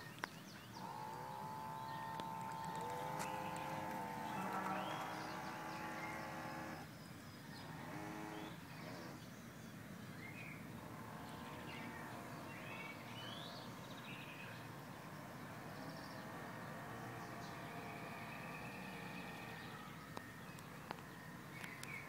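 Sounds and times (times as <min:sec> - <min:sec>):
jet drive whine: 0:00.7 - 0:06.9.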